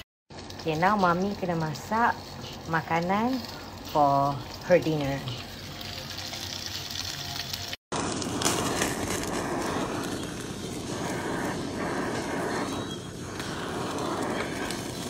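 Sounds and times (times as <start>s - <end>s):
butane torch hissing: 7.9s - 15.0s.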